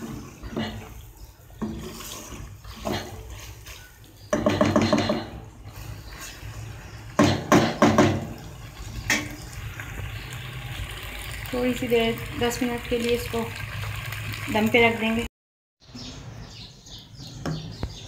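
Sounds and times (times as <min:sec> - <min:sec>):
spatula stirring and scraping pot: 0:00.0 - 0:10.4
sharp knocks: 0:07.2 - 0:08.4.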